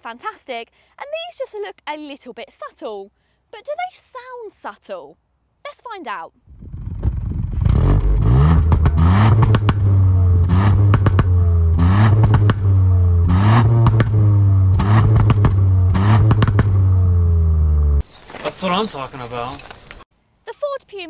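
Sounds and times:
exhaust cracks: 0:06.4 - 0:20.0
car engine revving: 0:06.5 - 0:18.0.

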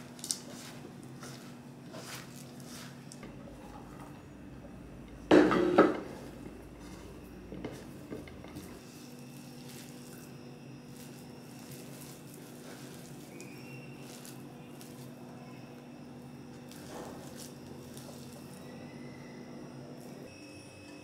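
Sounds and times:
hands squelching batter: 0:00.0 - 0:04.0, 0:06.1 - 0:15.7.

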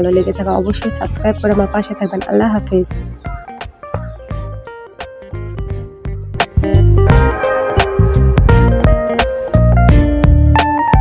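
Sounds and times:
background music with beat: 0:02.2 - 0:11.0.

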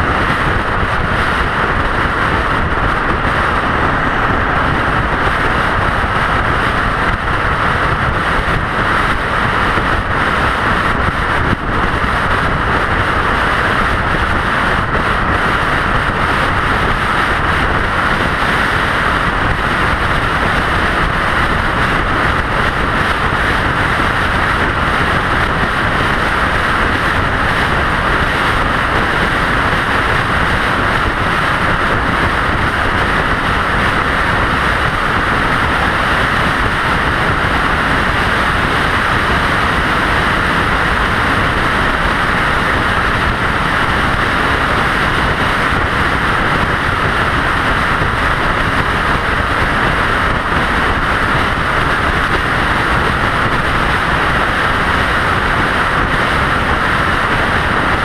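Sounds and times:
vehicle road and wind noise: 0:00.0 - 0:58.0.

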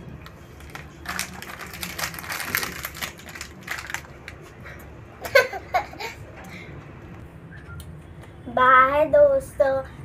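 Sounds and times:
plastic wrapper crinkling: 0:00.2 - 0:04.6.

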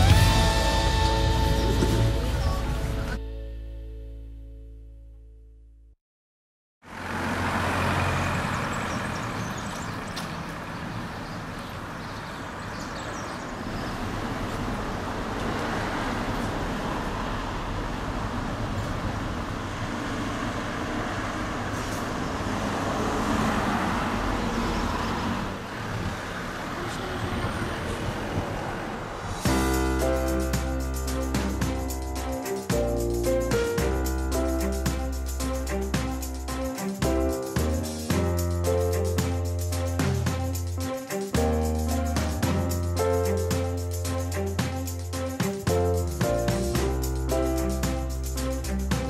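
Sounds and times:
road traffic noise: 0:00.0 - 0:03.5, 0:06.8 - 0:49.0
heavy vehicle engine running: 0:06.9 - 0:11.2.

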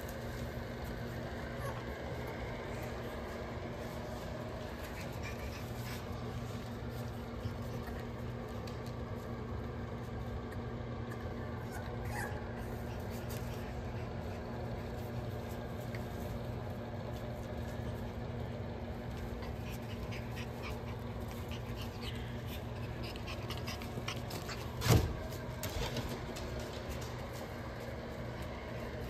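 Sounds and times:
steady low hum: 0:00.0 - 0:29.0
puppies panting: 0:00.1 - 0:09.2, 0:10.6 - 0:29.0
puppy whimpering: 0:11.6 - 0:13.1.

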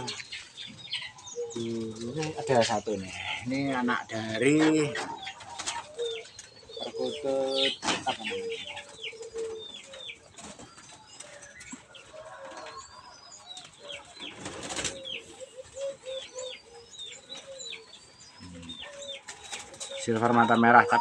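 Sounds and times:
doves cooing: 0:00.0 - 0:21.0
small birds chirping: 0:00.0 - 0:21.0
wing flapping and rustling: 0:04.0 - 0:16.1, 0:18.6 - 0:20.8.

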